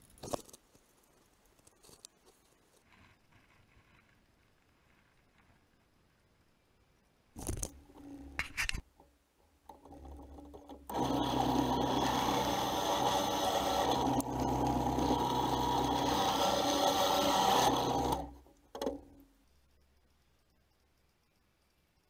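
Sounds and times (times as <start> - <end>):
drill press boring into wood: 9.8 - 19.0.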